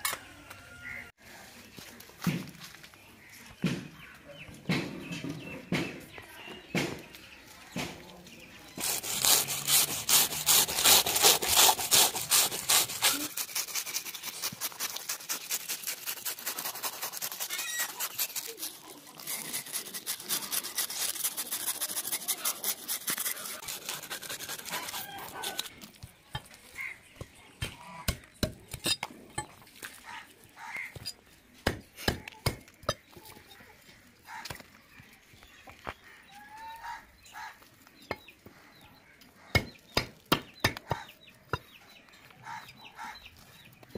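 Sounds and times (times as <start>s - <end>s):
knife scraping fish scales: 8.7s - 26.9s.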